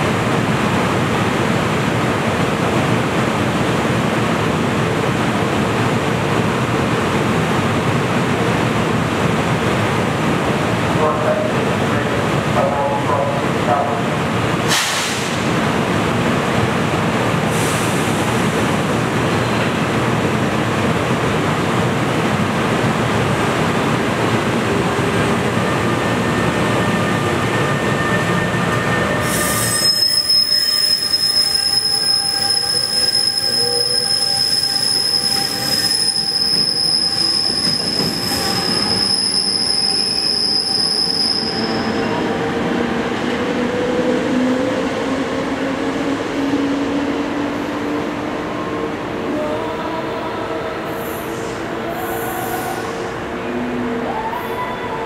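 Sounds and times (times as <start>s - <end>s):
wheels squealing on rails: 25.6s - 42.4s.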